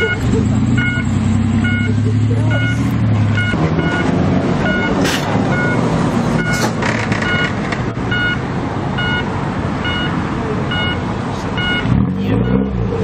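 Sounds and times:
short electronic beep: 0.0s - 1.0s, 1.6s - 5.8s, 11.6s - 11.9s
car engines and exhausts: 0.0s - 13.0s.

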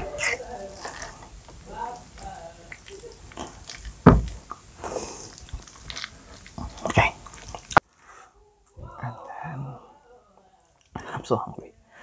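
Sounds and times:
fork squishing spaghetti: 0.2s - 1.4s, 2.0s - 7.8s.

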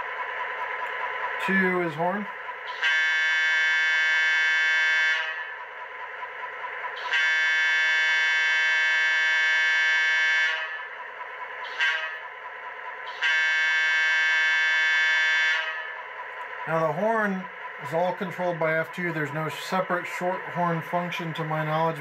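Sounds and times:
model diesel engine sound: 0.0s - 22.0s
model train air horn: 2.7s - 5.5s, 7.0s - 10.9s, 11.6s - 12.3s, 13.0s - 16.0s.

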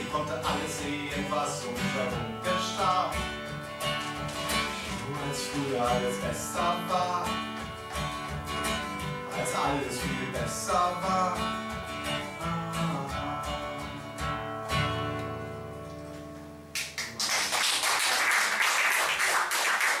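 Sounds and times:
acoustic guitar playing: 0.0s - 16.7s
audience applauding: 16.7s - 20.0s.

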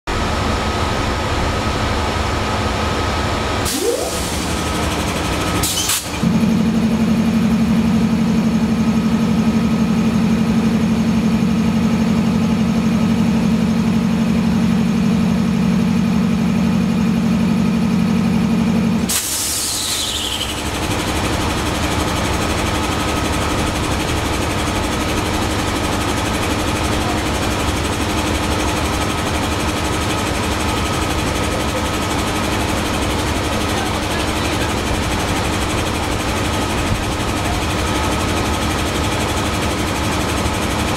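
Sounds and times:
air compressor drone: 0.1s - 40.9s
locomotive running: 0.1s - 40.9s
air hiss: 19.1s - 20.4s
falling whistle: 19.7s - 20.6s.

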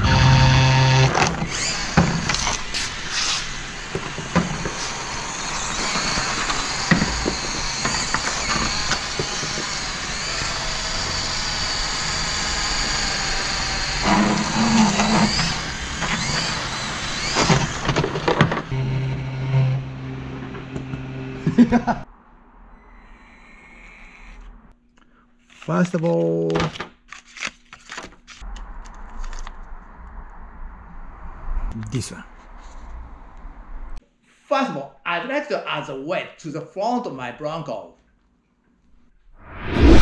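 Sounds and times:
electric motor and gears whining: 0.0s - 22.0s.

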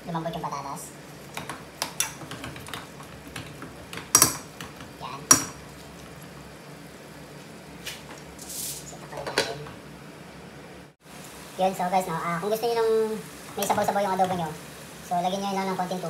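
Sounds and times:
ladle clanking against pot: 1.4s - 5.6s.

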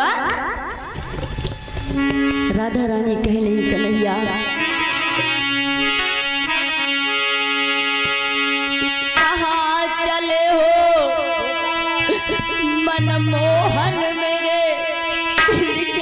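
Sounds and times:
instrument playing held notes: 0.0s - 16.0s
woman singing: 2.5s - 4.6s, 9.2s - 16.0s.

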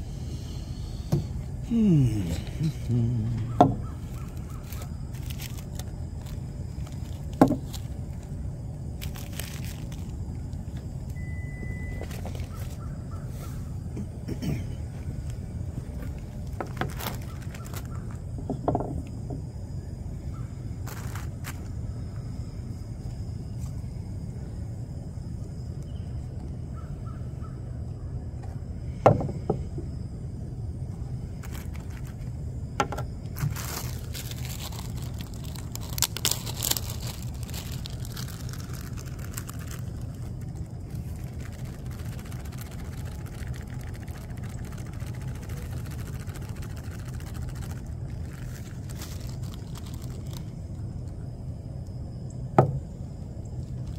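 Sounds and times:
low background rumble: 0.0s - 53.9s
foil pouch crinkling: 2.5s - 13.0s, 15.2s - 18.2s, 20.8s - 21.7s, 31.3s - 51.2s, 53.6s - 53.9s.

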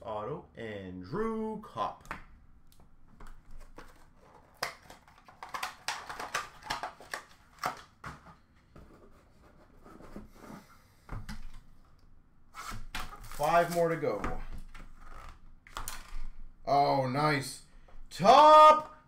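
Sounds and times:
cardboard rustling: 3.1s - 10.5s.

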